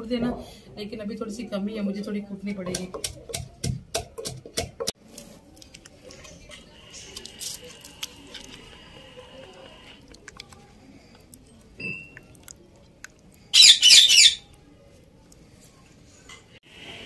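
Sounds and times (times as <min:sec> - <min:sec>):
stirring in plastic bowl: 0:02.6 - 0:13.4
bird chirping: 0:13.5 - 0:14.5.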